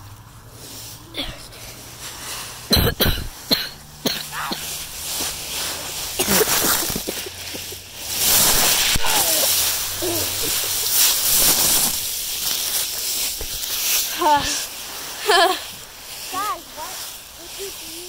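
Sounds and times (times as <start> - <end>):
dry leaves crunching and rustling: 0.0 - 18.0
child grunting: 9.0 - 10.6.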